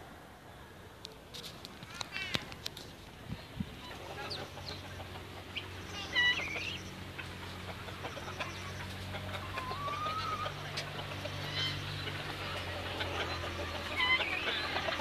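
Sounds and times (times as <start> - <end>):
fowl calling: 3.8 - 15.0.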